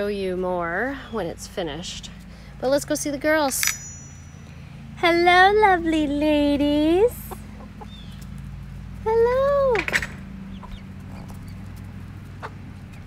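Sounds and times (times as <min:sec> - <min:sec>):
steady low hum: 0:00.0 - 0:13.0
hens clucking softly: 0:07.2 - 0:08.3, 0:10.5 - 0:13.0.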